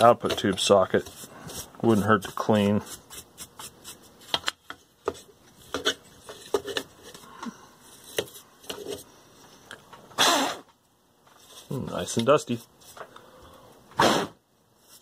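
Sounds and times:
bristle brush scrubbing metal: 0.0s - 4.4s.

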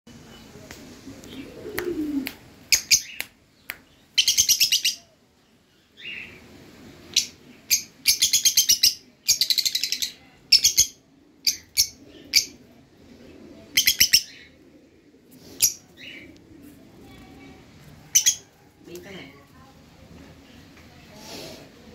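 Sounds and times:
lovebirds shrill chirping: 2.7s - 3.3s, 18.1s - 18.5s.

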